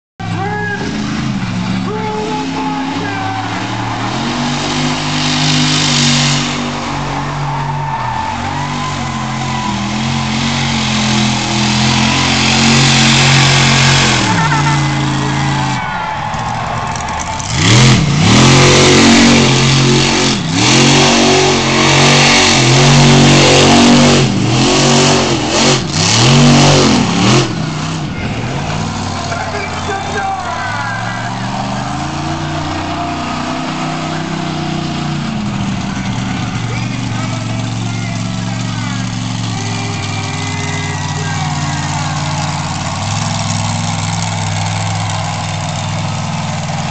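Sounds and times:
monster truck engine revving: 0.2s - 46.9s.

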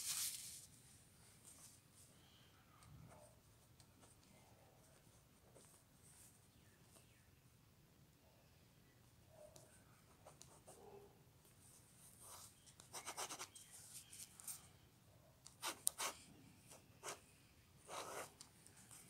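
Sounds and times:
pencil scratching on paper: 12.2s - 14.5s, 15.6s - 17.2s, 17.9s - 19.0s.

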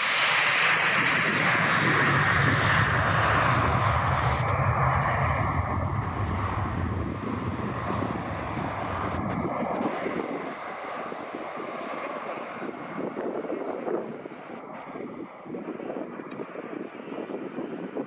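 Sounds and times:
jet engines whining: 0.0s - 18.0s.

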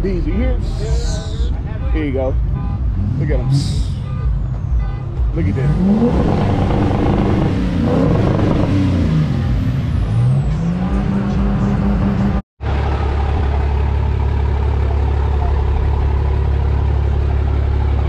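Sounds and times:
pickup truck engines driving past: 6.2s - 18.0s.

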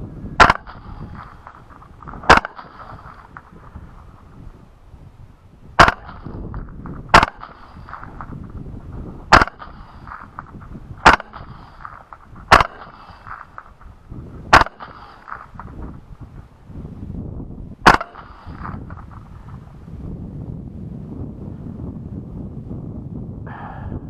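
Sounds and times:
suppressed rifle shots: 0.4s - 4.4s, 5.8s - 8.6s, 9.3s - 16.2s, 17.8s - 19.7s.

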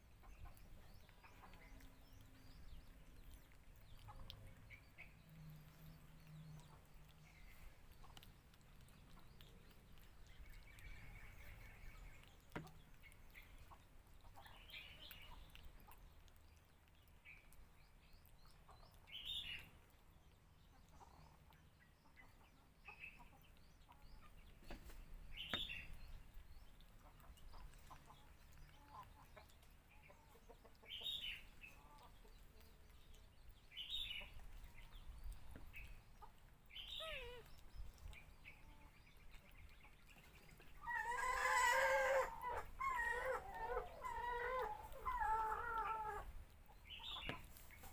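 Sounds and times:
high-pitched animal calls: 36.8s - 37.6s, 40.8s - 46.3s.

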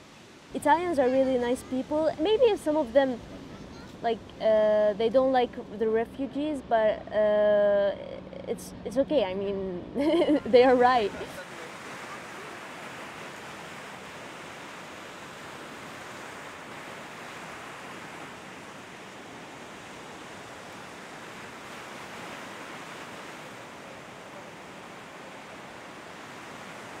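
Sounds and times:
surf breaking on beach: 11.0s - 27.0s.

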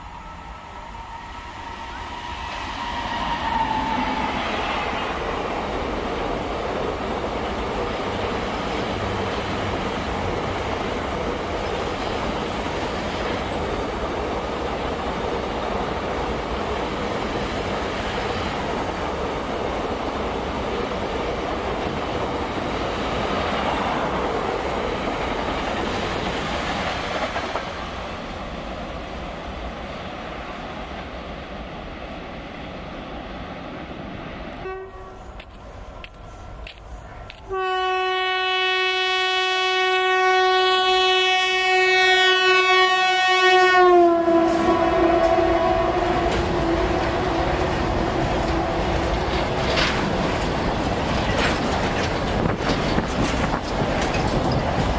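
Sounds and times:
locomotive horn blast: 34.6s - 35.5s, 37.4s - 49.2s
freight train wagons rolling: 34.7s - 37.7s, 44.8s - 54.9s.

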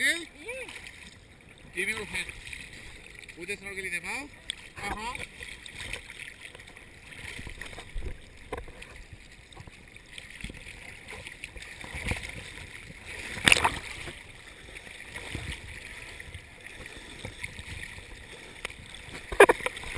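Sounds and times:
sea water sloshing: 0.0s - 19.9s
sharp water splash: 10.1s - 18.1s.

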